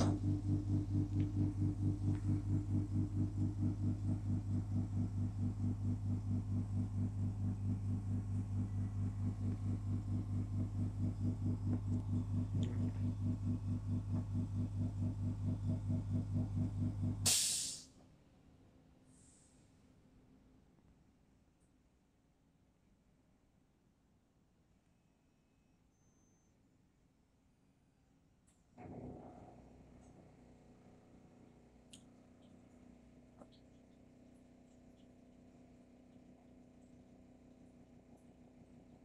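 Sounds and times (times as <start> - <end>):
vending machine pulsing hum: 0.0 - 17.3, 28.8 - 39.0.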